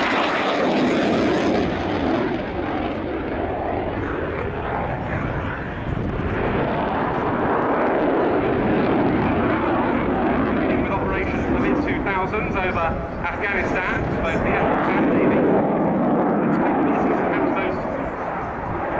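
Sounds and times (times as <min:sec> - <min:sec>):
fighter jet engines with afterburner: 0:00.0 - 0:18.9.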